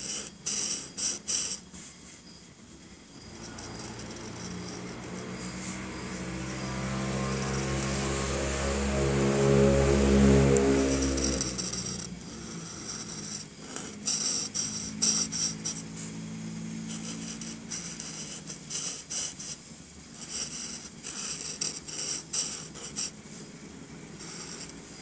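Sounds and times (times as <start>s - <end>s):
marker scratching on paper: 0.0s - 2.1s, 3.3s - 8.2s, 10.6s - 16.0s, 16.8s - 23.3s, 24.0s - 25.0s.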